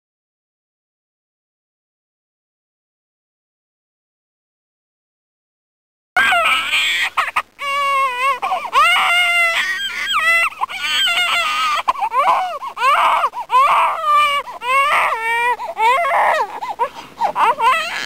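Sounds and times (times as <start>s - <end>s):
baby crying: 6.2s - 18.0s.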